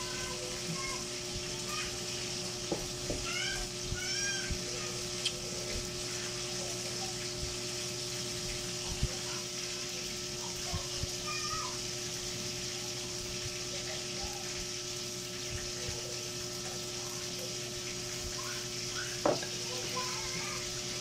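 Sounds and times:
faint hum: 0:00.0 - 0:21.0.

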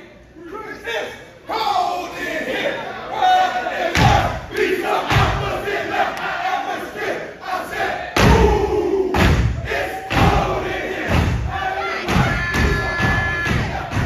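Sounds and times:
crowd yelling and cheering: 0:08.2 - 0:14.0
feet stomping on a stage: 0:12.1 - 0:14.0.

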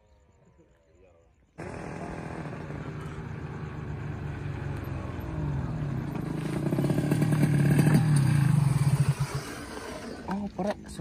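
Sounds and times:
motorcycle engine running: 0:01.6 - 0:10.3.

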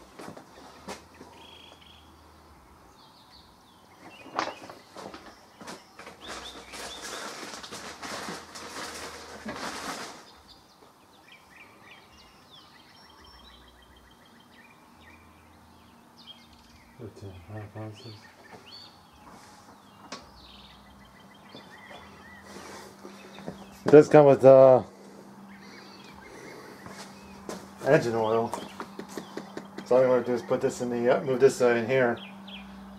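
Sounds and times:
rustling and handling noise: 0:00.0 - 0:01.4, 0:04.0 - 0:10.6, 0:18.4 - 0:20.3, 0:21.5 - 0:30.0
birds chirping faintly: 0:00.0 - 0:32.9.

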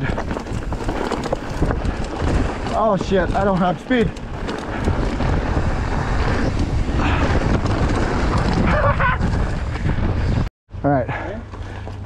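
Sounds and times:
tyres rumbling on gravel: 0:00.0 - 0:10.0
bike rattling: 0:00.0 - 0:10.5, 0:11.2 - 0:12.0
wind on microphone: 0:00.0 - 0:10.5.

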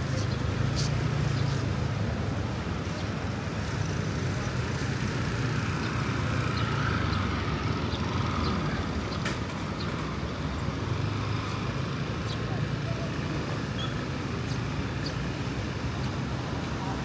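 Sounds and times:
road traffic rumble: 0:00.0 - 0:17.0
faint voices: 0:12.0 - 0:14.7.

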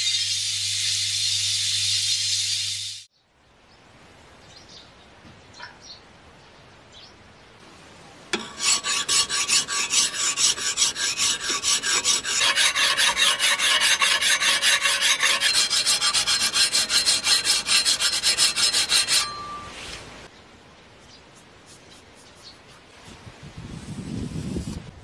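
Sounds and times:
hand file rasping on metal: 0:08.4 - 0:19.7.

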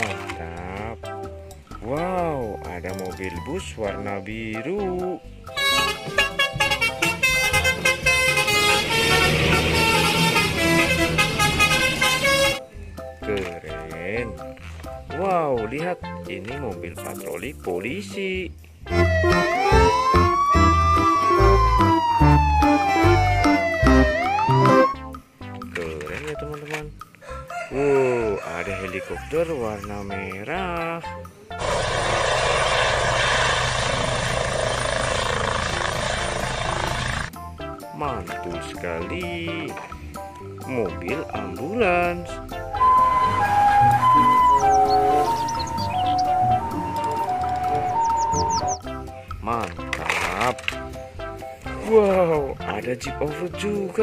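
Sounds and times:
musical air horn: 0:05.5 - 0:12.7, 0:42.7 - 0:48.8
bus engine running: 0:05.7 - 0:12.6, 0:31.6 - 0:37.3
helicopter rotor and engine: 0:31.6 - 0:37.3.

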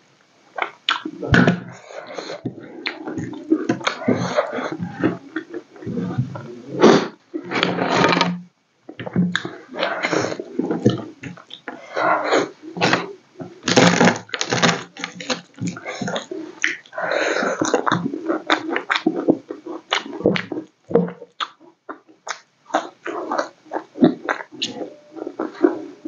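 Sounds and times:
wet chewing and lip smacking: 0:21.4 - 0:25.8.

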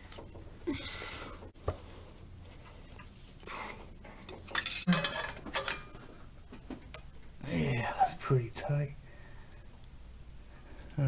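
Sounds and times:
metal tools clinking: 0:04.4 - 0:06.0.

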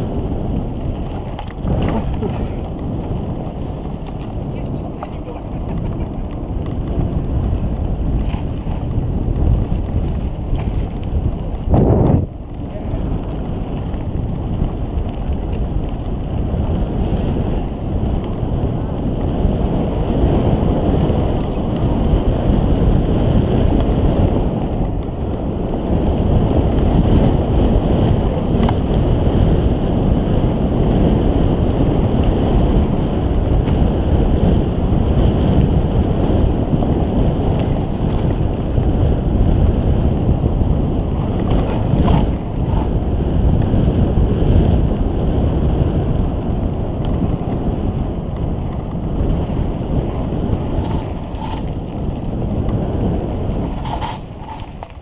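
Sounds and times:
tyres rumbling on dirt trail: 0:00.0 - 0:55.0
wind buffeting microphone: 0:00.0 - 0:55.0
bike clicks and knocks: 0:00.2 - 0:29.6, 0:30.4 - 0:44.1, 0:46.1 - 0:55.0.

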